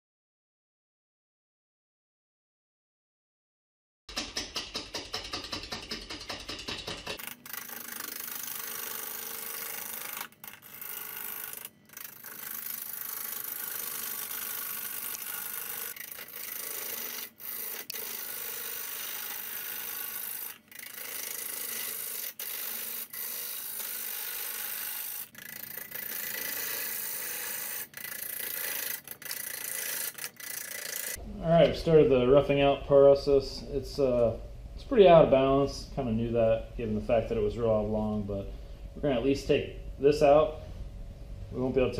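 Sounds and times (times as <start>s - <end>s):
lathe tool scraping wood: 4.1s - 31.9s.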